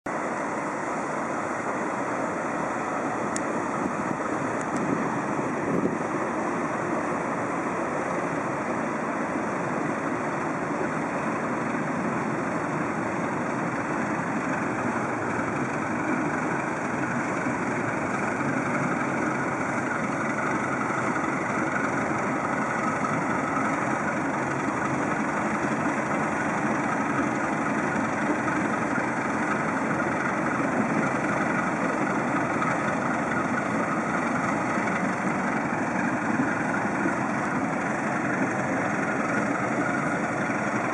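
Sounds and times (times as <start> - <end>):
barge diesel engine droning: 0.1 - 40.9.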